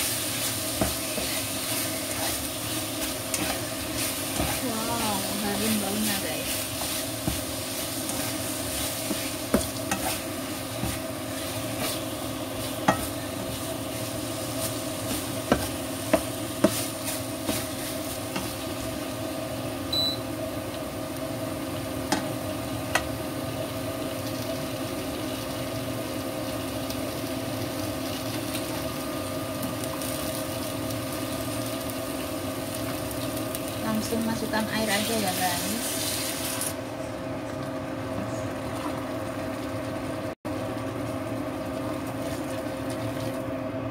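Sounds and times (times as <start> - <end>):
steady hum: 0.0 - 23.9
chicken wings sizzling in wok: 0.0 - 37.0.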